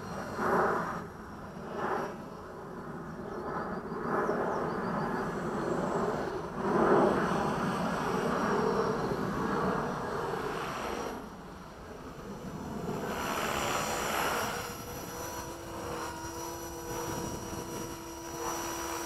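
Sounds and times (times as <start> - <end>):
model helicopter rotor whir: 0.0 - 19.0.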